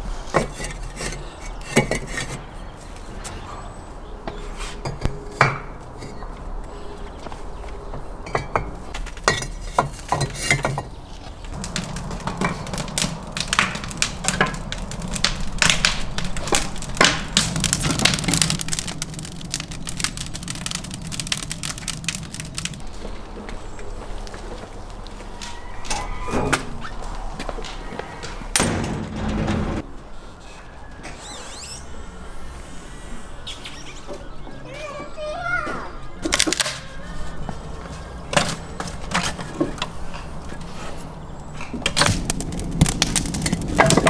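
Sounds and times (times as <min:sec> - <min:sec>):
bricks knocking and clinking: 0:11.6 - 0:22.8.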